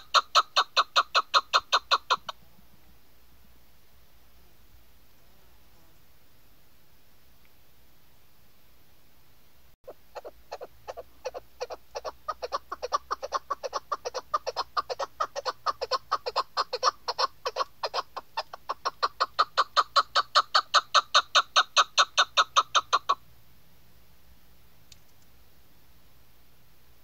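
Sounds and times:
partridge clucking calls: 0:00.0 - 0:02.4, 0:09.8 - 0:23.2.

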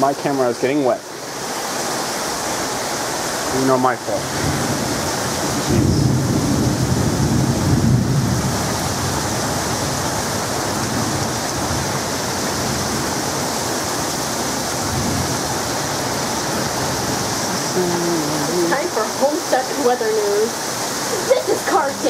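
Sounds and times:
heavy rain pouring: 0:00.0 - 0:22.0
low rumble of thunder: 0:04.2 - 0:13.3, 0:14.7 - 0:17.4.

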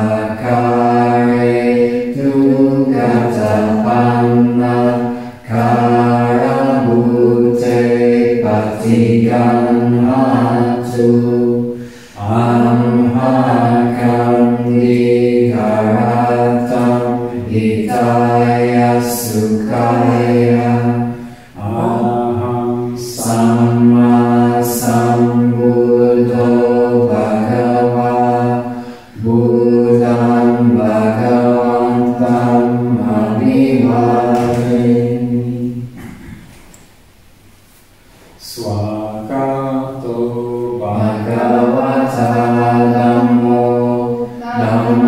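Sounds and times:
low devotional chanting: 0:00.0 - 0:36.9, 0:38.3 - 0:45.0.

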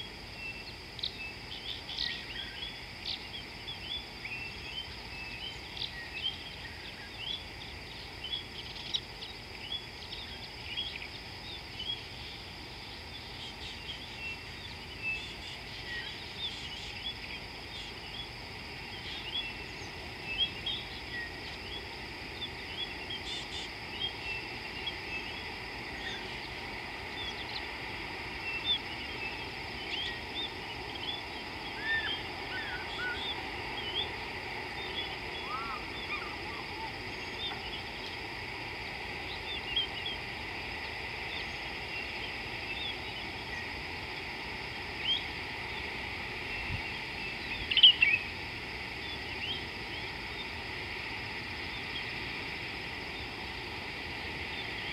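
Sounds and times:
small birds chirping: 0:00.0 - 0:50.6
steady high hiss: 0:00.0 - 0:54.9
whistled bird calls: 0:28.5 - 0:34.1, 0:34.8 - 0:37.9, 0:47.4 - 0:48.3.

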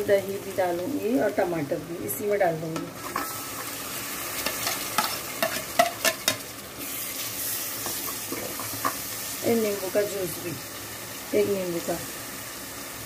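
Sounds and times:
masala sizzling in a metal pot: 0:00.0 - 0:13.0.

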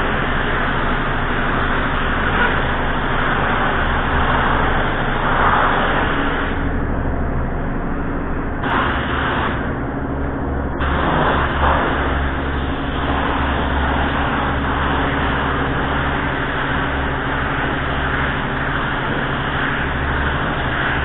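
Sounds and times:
low hum: 0:00.0 - 0:21.0
paint spray gun hissing: 0:08.6 - 0:09.7.

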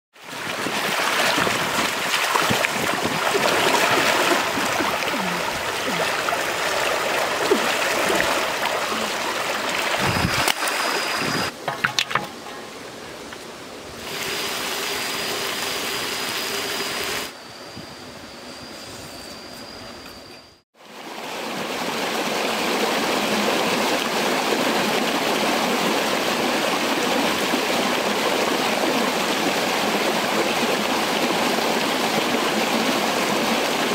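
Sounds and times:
rocky forest stream: 0:00.2 - 0:17.3, 0:20.8 - 0:33.9.

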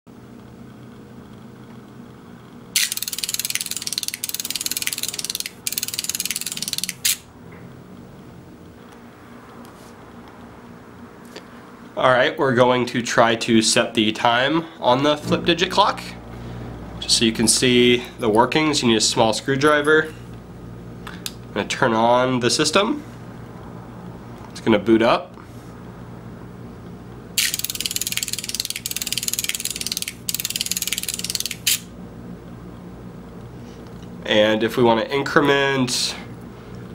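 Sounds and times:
flip-digit clock clattering: 0:27.4 - 0:31.6.

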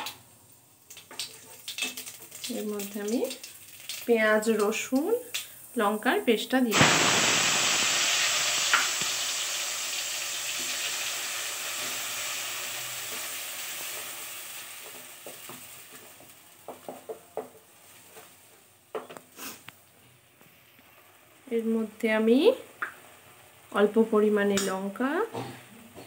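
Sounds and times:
paste sizzling in hot oil: 0:00.8 - 0:18.6
wooden spatula tapping pan: 0:14.8 - 0:17.6.

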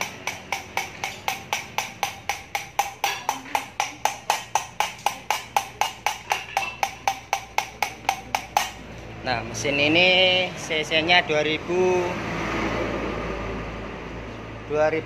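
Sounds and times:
valve tapping with metallic ring: 0:00.0 - 0:08.9.

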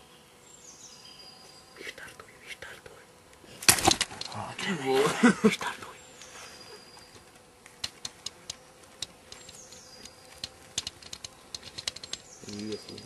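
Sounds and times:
sharp clicks and ticks: 0:07.7 - 0:13.0.

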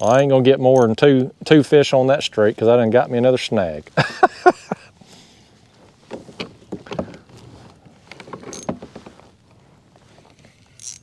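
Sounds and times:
fishing reel knocks and clicks: 0:00.0 - 0:00.2, 0:08.4 - 0:08.8, 0:10.6 - 0:11.0.

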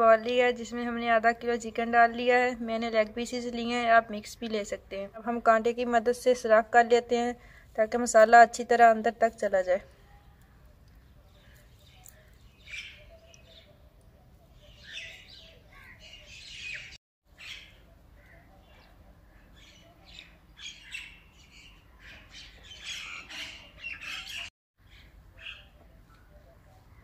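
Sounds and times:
birds chirping and squawking: 0:10.2 - 0:27.0.

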